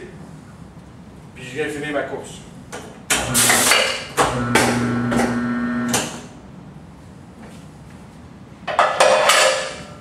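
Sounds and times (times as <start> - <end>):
tyre changer motor humming: 4.2 - 6.1.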